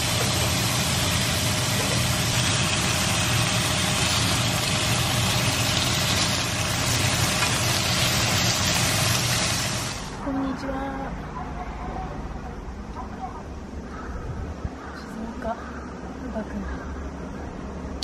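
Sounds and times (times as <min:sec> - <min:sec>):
beef sizzling in a frying pan: 0:00.0 - 0:10.2.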